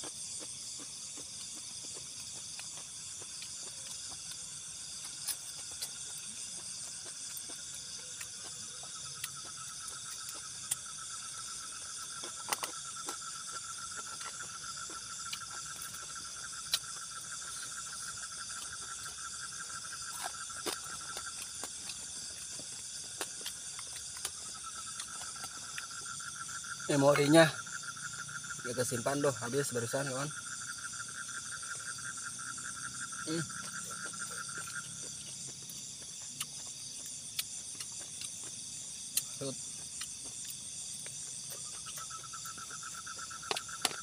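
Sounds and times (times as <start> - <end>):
low pulsing insect trill: 0.0 - 44.0
night insects trilling: 0.0 - 44.0.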